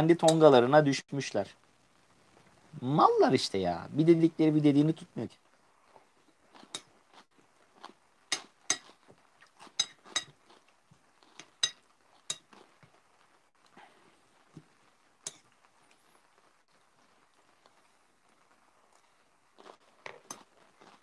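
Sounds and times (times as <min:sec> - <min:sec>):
cutlery clinking on a plate: 0:08.3 - 0:08.9, 0:09.7 - 0:10.4.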